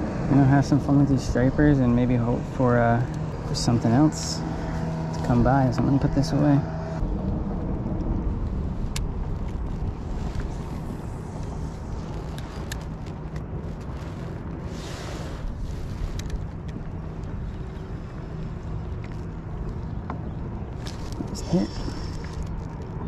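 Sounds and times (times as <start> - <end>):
wind rumbling on microphone: 0.0 - 23.0
fishing gear clicks and knocks: 11.4 - 14.5, 15.4 - 23.0.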